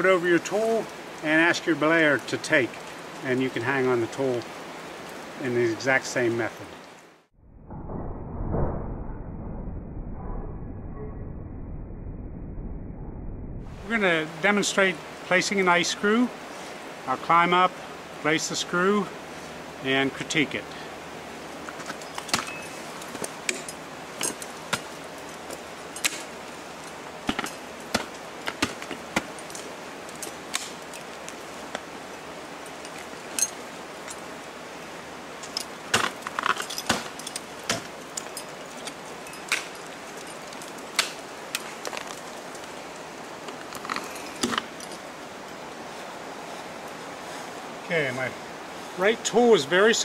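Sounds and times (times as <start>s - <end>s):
steady background hiss: 0.0s - 7.3s, 13.7s - 50.0s
ice axes striking ice: 21.7s - 26.4s, 27.2s - 31.1s, 35.4s - 42.2s
metal hardware clinking: 21.7s - 27.7s, 32.7s - 34.2s, 35.4s - 40.9s.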